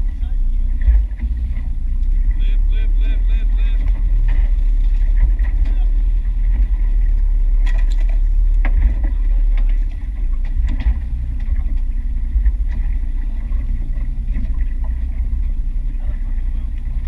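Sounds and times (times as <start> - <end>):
boat engine rumble: 0.0 - 17.0
knocks and clicks on boat: 0.0 - 17.0.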